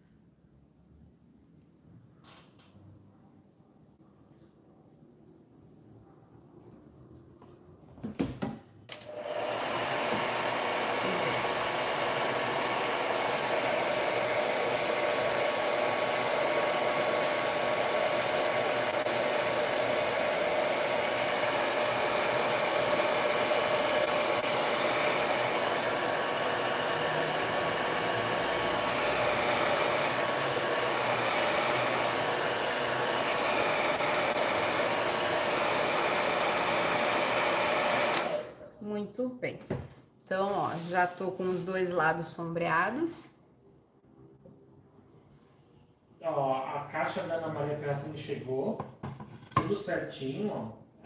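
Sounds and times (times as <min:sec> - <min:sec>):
hair dryer blowing: 0:08.9 - 0:38.7.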